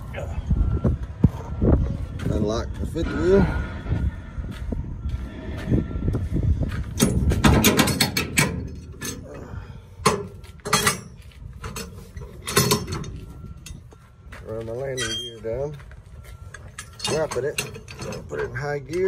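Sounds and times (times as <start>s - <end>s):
truck engine idling rumble: 0.0s - 19.0s
metal clanks and clinks: 6.9s - 14.0s, 14.8s - 15.8s, 16.4s - 19.0s.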